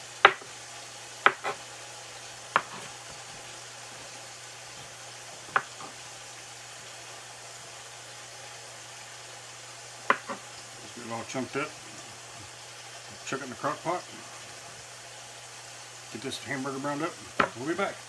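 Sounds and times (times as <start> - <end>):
knife chopping on cutting board: 0.2 - 0.5, 1.2 - 1.6, 2.5 - 3.5, 5.4 - 6.0, 10.1 - 10.4, 17.4 - 17.6.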